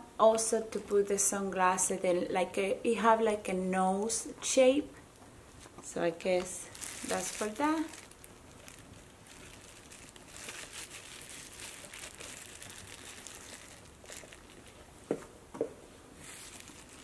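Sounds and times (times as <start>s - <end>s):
plastic wrapping crinkling: 5.6s - 15.3s, 16.2s - 17.0s.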